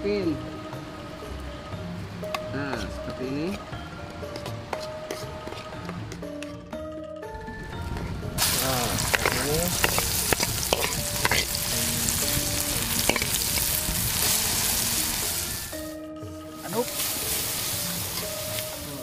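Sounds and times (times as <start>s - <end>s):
spatula scraping in pan: 4.4s - 5.8s, 8.8s - 11.7s, 13.0s - 14.3s
spice paste sizzling in oil: 8.4s - 16.0s, 16.6s - 19.0s.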